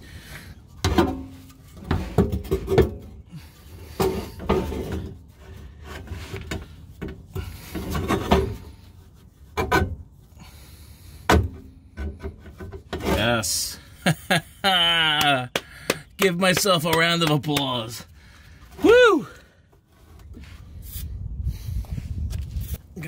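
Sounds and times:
exhaust pipe scraping and knocking: 0:00.0 - 0:14.3.

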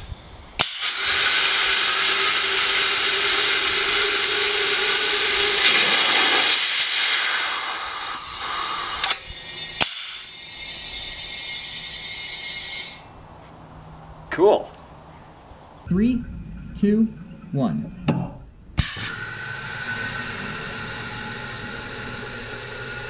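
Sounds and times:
water rushing hiss: 0:00.0 - 0:13.1, 0:18.8 - 0:23.0
valve shutting click: 0:00.6 - 0:11.2, 0:18.0 - 0:23.0.

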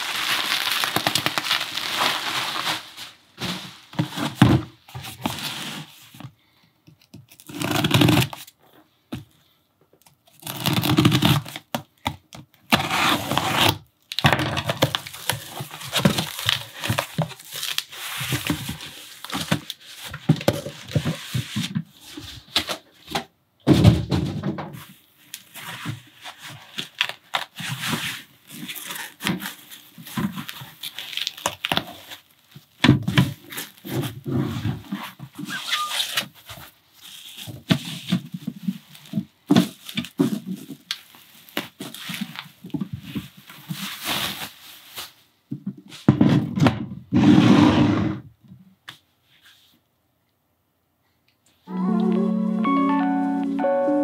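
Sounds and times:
bubble wrap crinkling: 0:00.0 - 0:04.4, 0:10.3 - 0:12.0, 0:13.0 - 0:21.6, 0:25.2 - 0:34.2, 0:35.4 - 0:45.3
cardboard and foam rustling: 0:00.0 - 0:06.4, 0:10.3 - 0:47.3.

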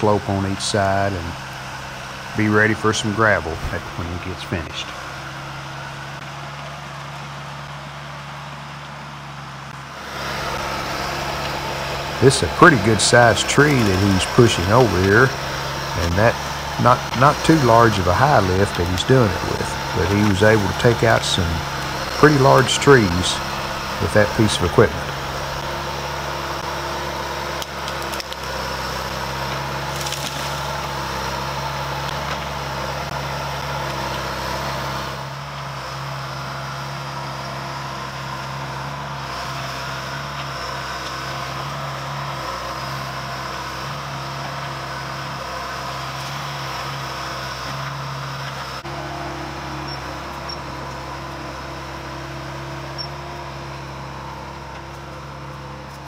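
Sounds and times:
diesel engine running: 0:00.0 - 0:56.0
wood splintering cracks: 0:12.2 - 0:25.8, 0:26.7 - 0:34.3.

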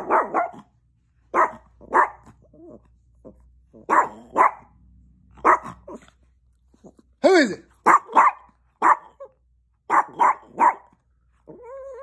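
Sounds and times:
small dog barking: 0:00.0 - 0:02.6, 0:03.7 - 0:04.8, 0:05.4 - 0:06.2, 0:07.8 - 0:12.0.

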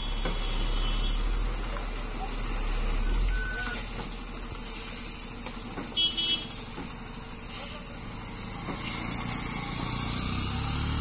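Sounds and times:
lorry diesel engine at low revs: 0:00.0 - 0:11.0
motorcycle passing: 0:08.0 - 0:11.0.

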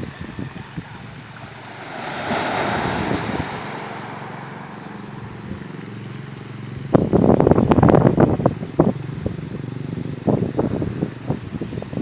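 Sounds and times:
wave breaking on pebble beach: 0:01.4 - 0:04.7.

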